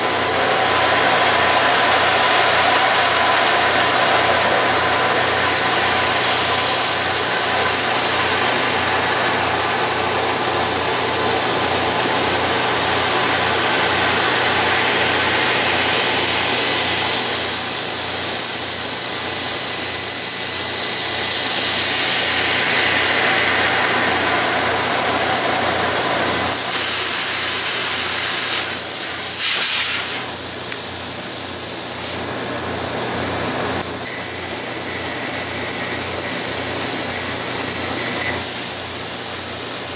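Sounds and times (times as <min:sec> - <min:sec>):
low machine hum: 0:00.0 - 0:26.7
gas hissing from laser cutter: 0:00.0 - 0:39.9.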